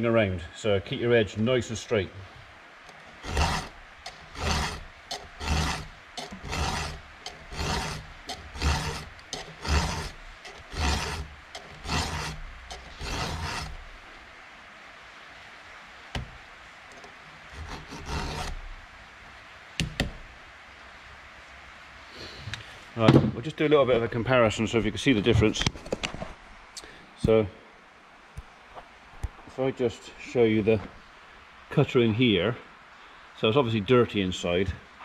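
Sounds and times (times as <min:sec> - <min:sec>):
file rasping on chain: 0:02.9 - 0:14.0, 0:17.5 - 0:18.6.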